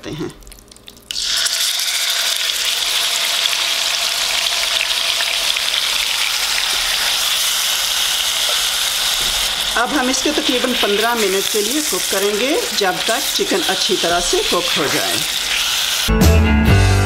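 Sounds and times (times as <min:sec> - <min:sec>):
chicken frying in oil: 0:00.3 - 0:16.1
spatula stirring: 0:05.3 - 0:16.0.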